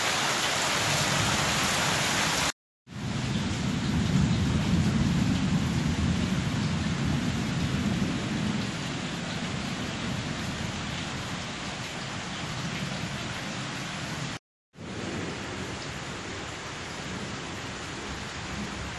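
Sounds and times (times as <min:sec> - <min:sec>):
steady rain falling: 0:00.0 - 0:18.9
thunder rumbling: 0:03.0 - 0:11.4.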